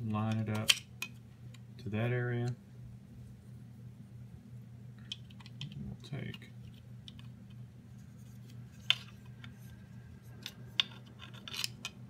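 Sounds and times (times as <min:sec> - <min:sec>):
steady low hum: 0:00.0 - 0:12.0
plastic parts clicking and scraping: 0:05.0 - 0:12.0.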